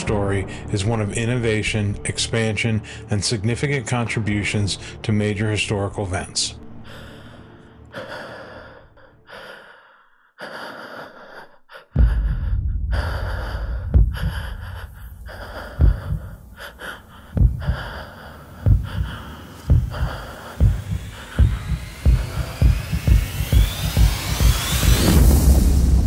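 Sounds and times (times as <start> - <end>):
heavy gasping breaths: 6.8 - 25.1
deep irregular thumps: 12.0 - 26.0
low rumble: 12.0 - 26.0.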